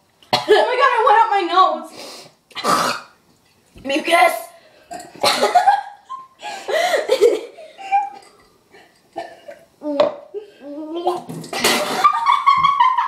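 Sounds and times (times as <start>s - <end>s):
person coughing: 5.2s - 5.8s.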